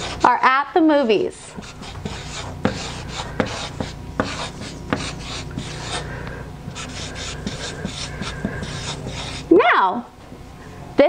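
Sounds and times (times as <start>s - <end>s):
marker scratching on paper: 0.0s - 0.4s, 1.5s - 6.1s, 6.7s - 9.5s.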